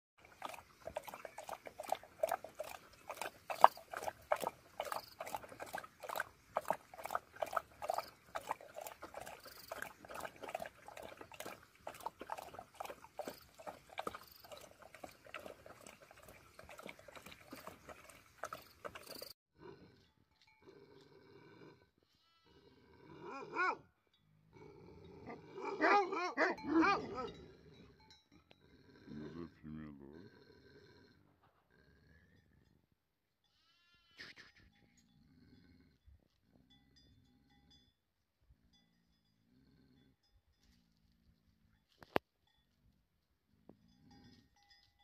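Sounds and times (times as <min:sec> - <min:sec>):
dog lapping liquid from bowl: 0:00.2 - 0:19.3.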